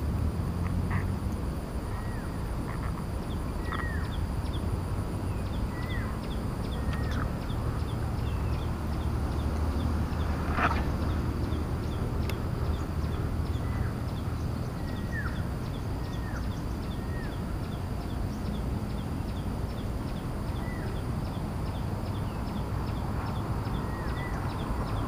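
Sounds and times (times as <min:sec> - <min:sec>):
birds chirping: 0:00.0 - 0:25.0
steady low rumble: 0:00.0 - 0:25.0.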